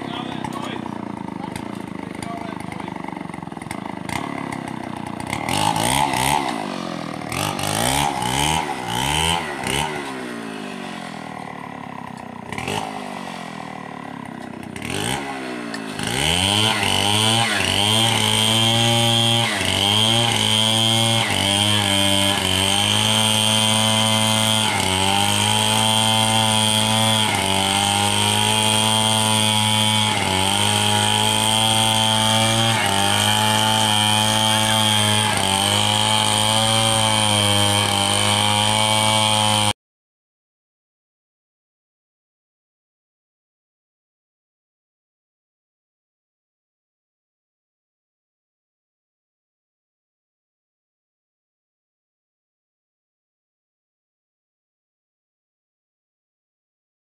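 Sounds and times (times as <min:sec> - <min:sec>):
chainsaw cutting log: 0:00.0 - 0:39.8.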